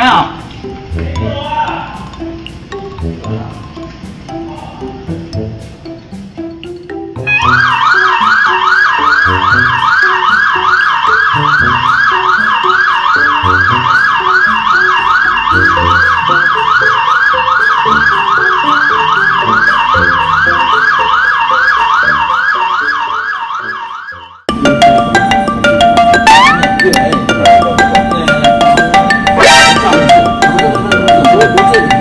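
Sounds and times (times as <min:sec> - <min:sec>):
background music: 0:00.0 - 0:32.0
emergency siren yelping: 0:07.0 - 0:32.0.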